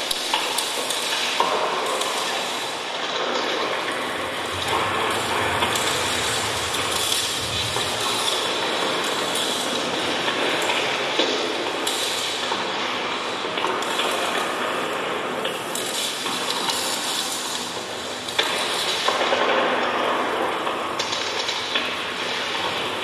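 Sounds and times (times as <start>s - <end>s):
low rumble: 3.9s - 9.7s
experimental electronic music: 4.0s - 9.0s.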